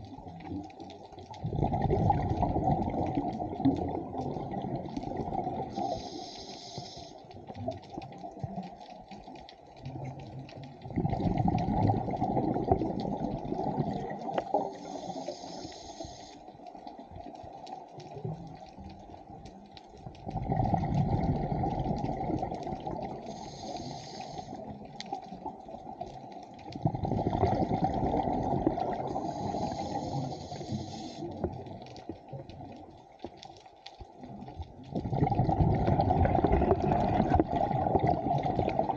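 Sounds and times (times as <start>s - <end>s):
exhaled bubbles rushing: 1.2s - 6.0s, 9.8s - 14.9s, 20.2s - 23.5s, 24.6s - 30.7s, 34.2s - 38.9s
regulator inhale hiss: 5.7s - 7.4s, 14.6s - 16.8s, 23.2s - 24.9s, 29.0s - 31.5s.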